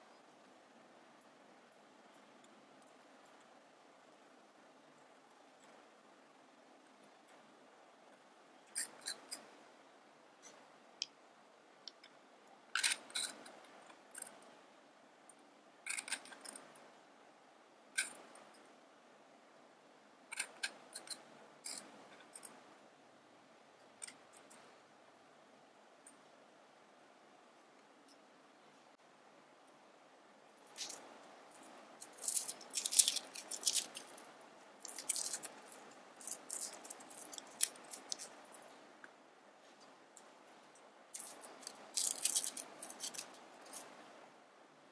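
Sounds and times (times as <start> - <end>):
garlic skin crackling: 30.6 - 38.7, 41.1 - 43.9.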